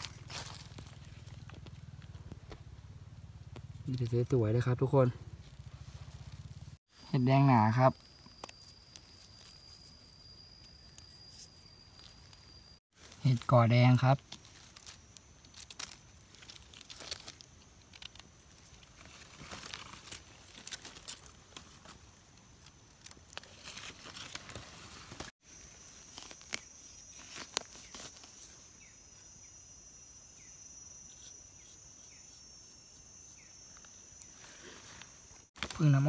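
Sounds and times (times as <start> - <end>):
dry leaves rustling and crackling: 0.0 - 3.0, 12.0 - 28.9, 35.6 - 36.0
high insect drone: 0.0 - 36.0.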